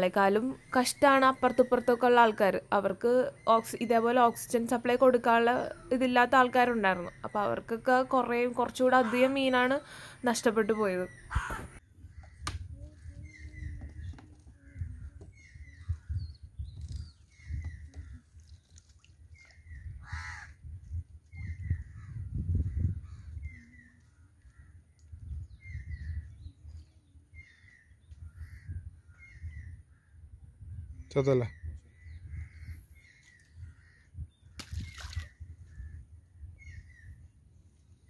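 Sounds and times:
crows cawing: 11.3 - 12.5, 20.0 - 20.6.

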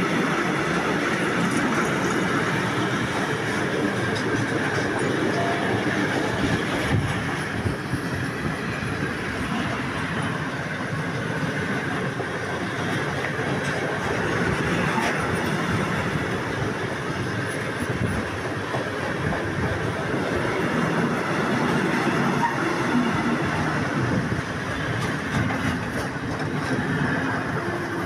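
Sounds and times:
freight train wheels clattering: 0.0 - 28.0.

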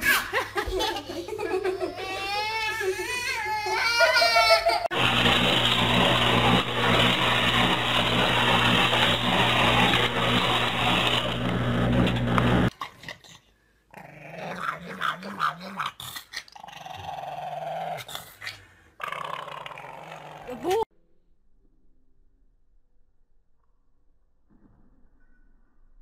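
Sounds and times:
dog growling: 13.0 - 20.8.

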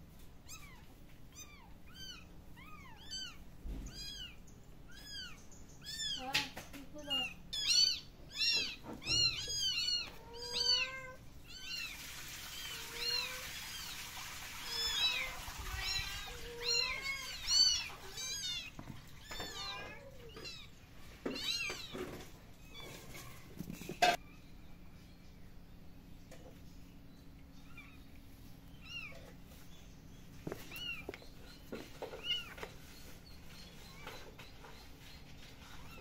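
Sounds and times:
kittens mewing: 0.4 - 6.5, 7.1 - 12.0.

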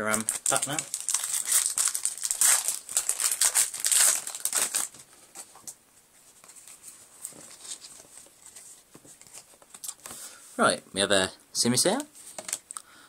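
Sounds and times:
foil wrapper crinkling: 0.0 - 5.0
faint rustles and taps: 5.3 - 10.2.

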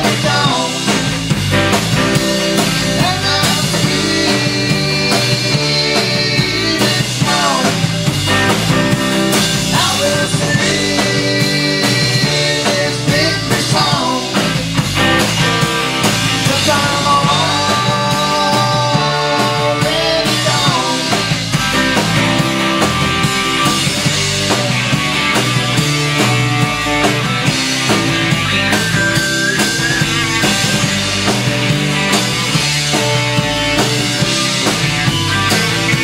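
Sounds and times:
live rock band playing: 0.0 - 36.0.

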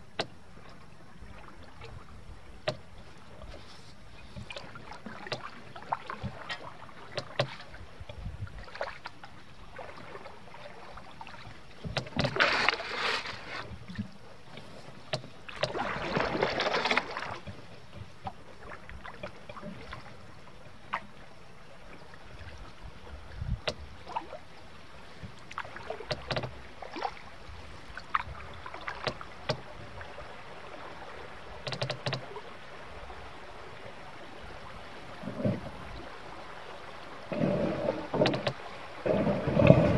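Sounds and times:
water along canoe hull: 0.0 - 39.9
water splashing: 2.7 - 8.0, 8.6 - 20.2, 23.4 - 39.9
light knocks on hull: 4.3 - 8.9, 11.8 - 12.7, 25.2 - 27.2, 28.0 - 30.0.

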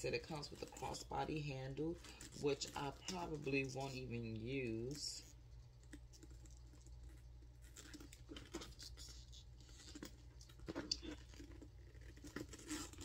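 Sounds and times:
rustling: 0.0 - 13.0.

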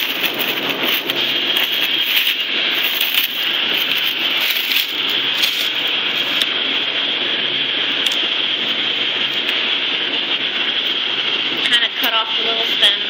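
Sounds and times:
cellophane crinkling and clicking: 0.0 - 6.5
cooler fan whooshing: 0.0 - 13.0.

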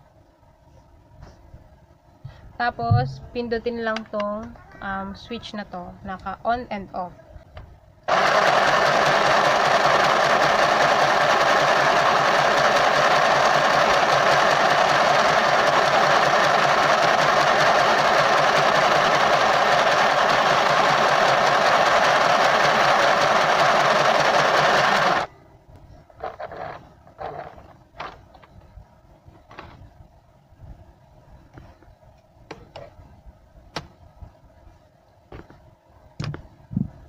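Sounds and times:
sewing machine stitching: 8.1 - 25.3, 26.2 - 27.7.

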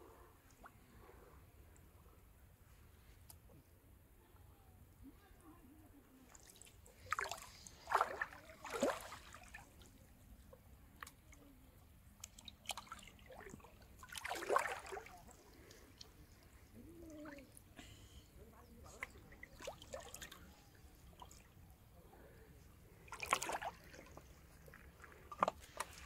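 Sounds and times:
river water splashing: 6.3 - 9.9, 12.3 - 16.1, 19.0 - 21.6, 23.0 - 26.0.

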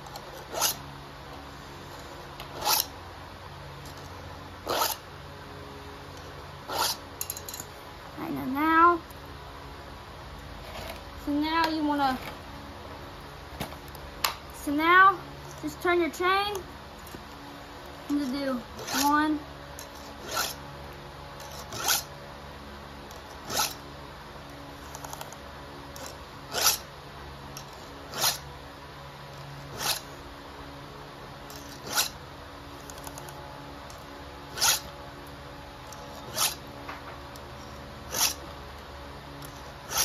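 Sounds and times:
file scraping chainsaw chain: 0.1 - 0.8, 2.5 - 2.9, 3.9 - 5.0, 6.7 - 7.7, 18.2 - 19.2, 19.8 - 20.6, 21.4 - 22.1, 23.2 - 23.8, 26.0 - 26.9, 27.6 - 28.5, 29.6 - 30.1, 31.5 - 32.2, 33.9 - 34.9, 35.9 - 36.6, 37.6 - 38.4, 39.4 - 40.0.

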